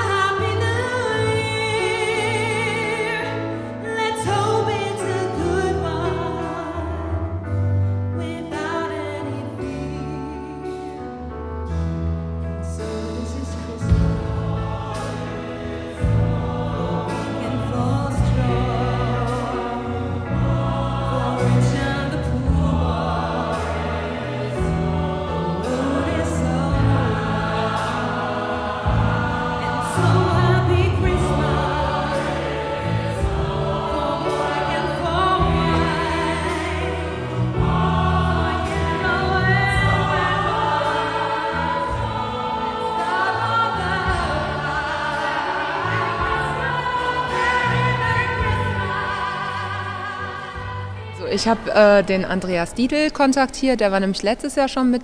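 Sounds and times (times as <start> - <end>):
choir singing: 0.0 - 7.1, 13.0 - 52.6
woman singing lead: 0.0 - 7.4, 8.1 - 11.2, 21.1 - 23.7.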